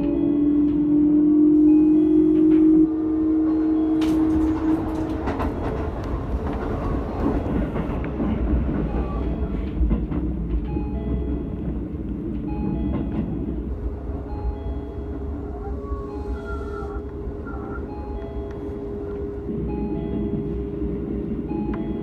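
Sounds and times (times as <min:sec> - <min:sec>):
train motor whine: 0:00.0 - 0:22.0
train wheels rumbling on rail: 0:00.0 - 0:22.0
clicks over rail joints: 0:03.9 - 0:10.8.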